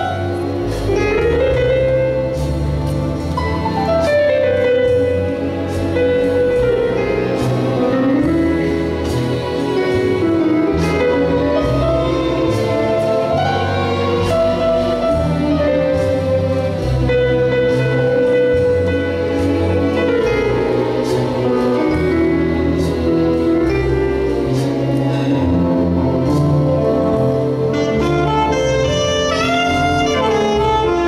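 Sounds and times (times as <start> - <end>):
symphony orchestra playing: 0.0 - 31.0
saxophone solo melody: 27.5 - 31.0.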